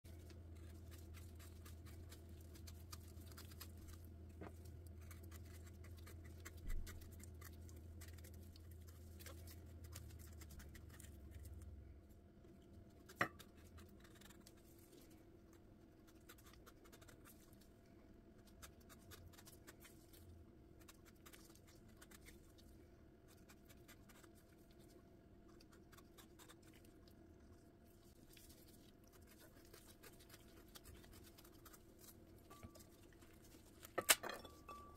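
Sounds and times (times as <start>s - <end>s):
knife scratching fruit rind: 0.1s - 11.7s, 12.9s - 17.7s, 18.4s - 27.0s, 27.9s - 33.8s.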